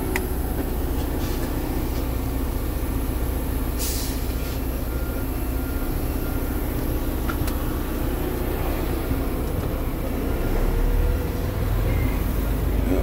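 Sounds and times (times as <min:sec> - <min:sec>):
diesel truck engine humming: 0:00.0 - 0:13.0
short hiss: 0:03.8 - 0:04.6.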